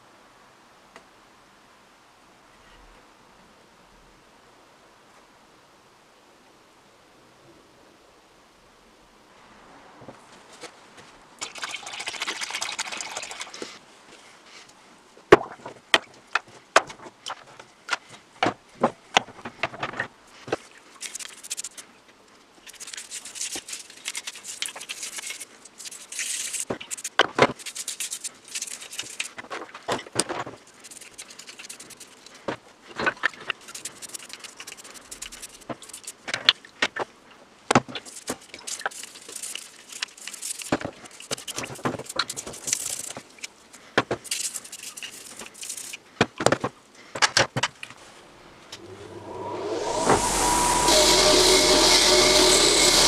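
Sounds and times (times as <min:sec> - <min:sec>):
liquid splashing: 0:11.4 - 0:13.6, 0:38.1 - 0:43.2
liquid poured into plastic tub: 0:11.4 - 0:13.7
brush scrubbing metal: 0:21.0 - 0:21.8, 0:22.6 - 0:29.4, 0:30.6 - 0:32.4, 0:33.4 - 0:36.2, 0:38.0 - 0:43.4, 0:44.2 - 0:46.0, 0:49.8 - 0:53.0.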